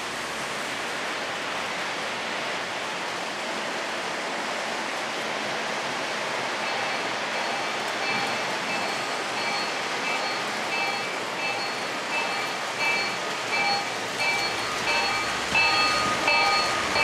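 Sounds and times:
model train running on track: 0.0 - 17.0
electronic locomotive bell ringing: 6.6 - 17.0.

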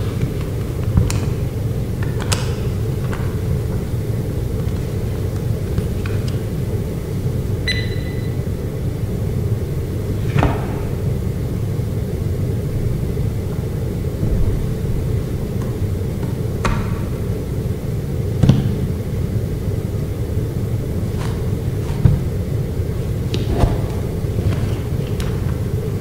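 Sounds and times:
brief beep: 7.6 - 8.4
low rumble: 11.5 - 17.9.

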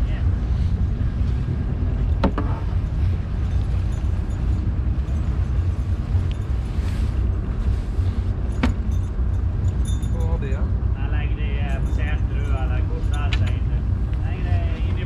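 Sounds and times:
boat engine rumble: 0.0 - 15.0
wind buffeting microphone: 0.0 - 15.0
sharp knocks: 2.2 - 2.6.

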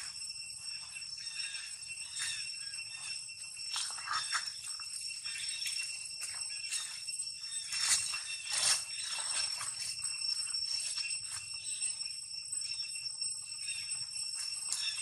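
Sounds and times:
high-pitched ringing drone: 0.0 - 15.0
dry leaves crunching underfoot: 3.7 - 11.8.

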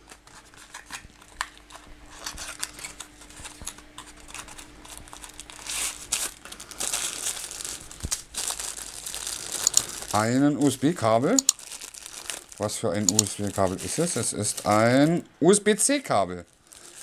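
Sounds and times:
wrapper crinkling: 0.0 - 15.3, 16.3 - 17.0
small handling clicks: 9.6 - 9.9, 11.3 - 11.6, 13.0 - 13.3.

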